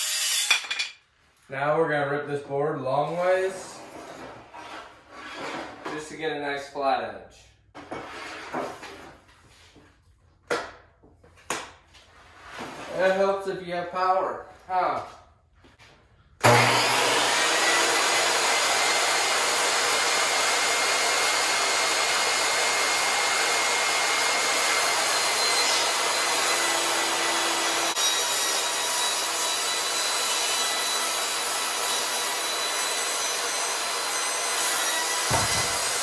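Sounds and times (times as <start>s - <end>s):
table saw cutting a board: 0.0s - 0.9s, 16.4s - 36.0s.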